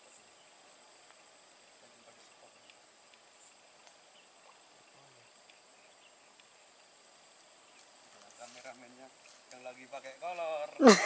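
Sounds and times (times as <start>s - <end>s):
faint clicks: 2.6s - 4.6s, 5.4s - 5.6s.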